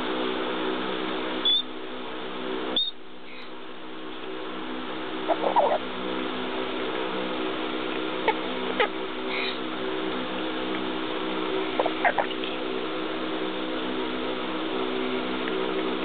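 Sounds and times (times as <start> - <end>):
parrot high whistles: 1.4 - 1.7, 2.8 - 3.0
parrot soft chirps: 5.3 - 5.8.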